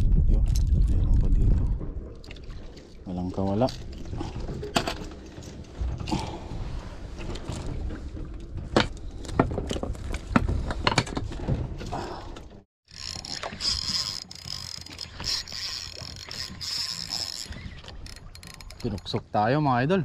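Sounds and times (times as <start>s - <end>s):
fishing reel whirring and clicking: 12.9s - 19.2s.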